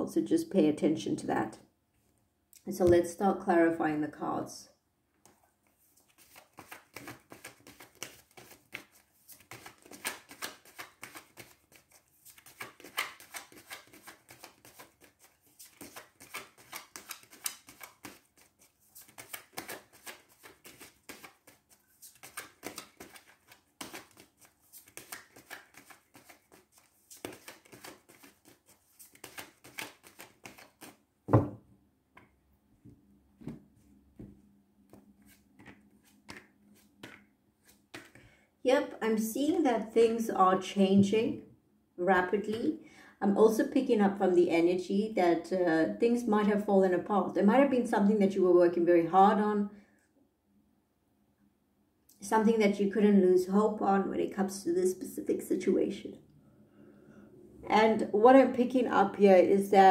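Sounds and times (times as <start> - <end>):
cards being shuffled: 5.2 - 31.5, 34.2 - 38.2
thump: 31.3 - 31.6.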